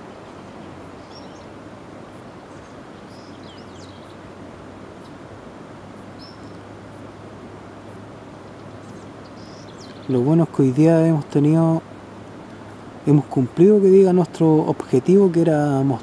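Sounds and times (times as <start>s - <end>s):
small birds chirping: 0.0s - 5.2s, 6.0s - 7.2s, 7.8s - 11.8s
rushing outdoor background noise: 0.0s - 16.0s.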